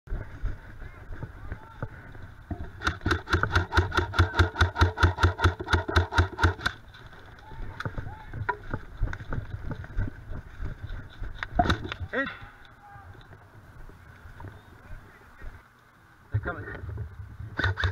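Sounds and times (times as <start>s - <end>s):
airsoft rifle shots: 2.8s - 6.8s, 17.6s - 17.9s.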